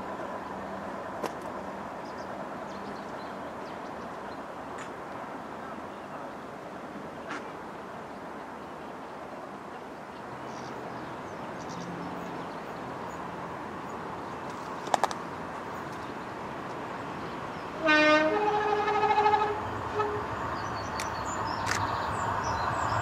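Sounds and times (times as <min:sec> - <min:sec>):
rumble of approaching train: 0:00.0 - 0:23.0
locomotive two-tone horn: 0:17.8 - 0:20.4.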